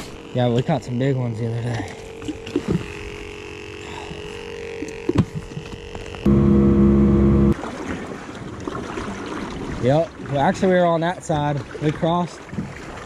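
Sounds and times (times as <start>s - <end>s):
aerator humming: 1.8s - 7.6s
loud low hum: 6.3s - 7.6s.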